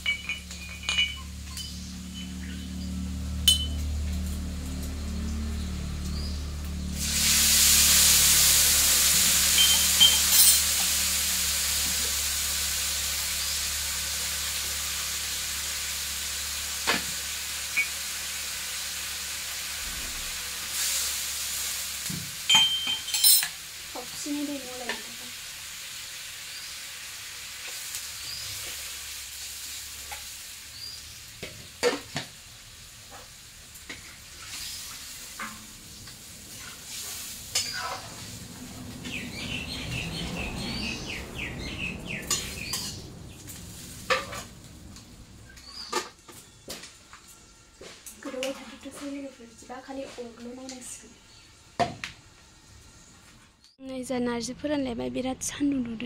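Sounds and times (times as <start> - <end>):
food sizzling in hot oil: 0.0 - 47.0
metal spatula clinking on wok: 3.5 - 3.8, 22.5 - 23.5.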